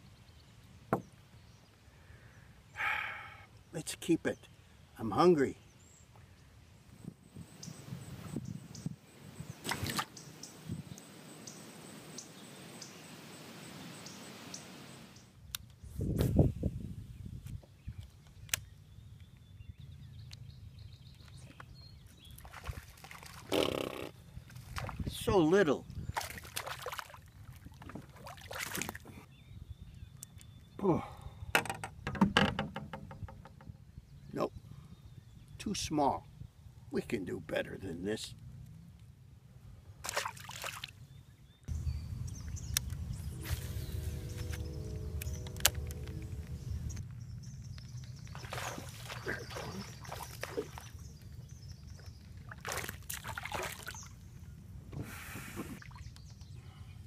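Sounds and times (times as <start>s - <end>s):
wind rumble on microphone: 6.6s - 10.0s, 10.6s - 11.0s, 15.5s - 23.0s, 24.2s - 26.5s, 27.3s - 35.6s, 41.4s - 52.4s
fishing tackle clicks and knocks: 31.5s - 33.7s
faint chord of steady tones: 41.7s - 47.0s
low steady rumble: 41.7s - 48.4s.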